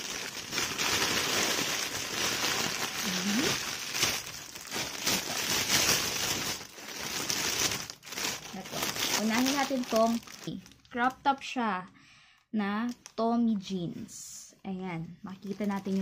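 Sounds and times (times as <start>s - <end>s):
plastic packaging crinkling: 0.0s - 11.2s, 15.4s - 16.0s.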